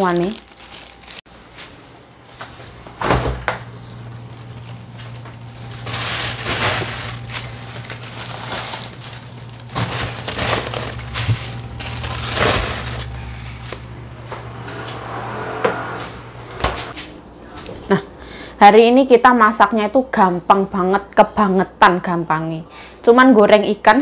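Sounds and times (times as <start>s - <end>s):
plastic bags rustling: 0.0s - 14.0s
low steady hum: 0.0s - 23.0s.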